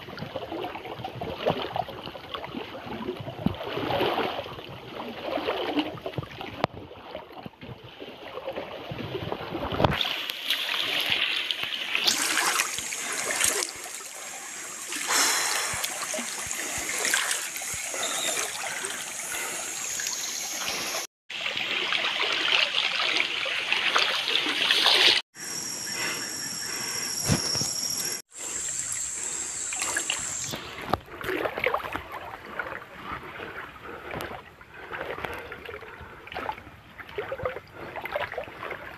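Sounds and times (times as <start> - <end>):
water splashing from wading: 0.0 - 25.2, 28.0 - 38.9.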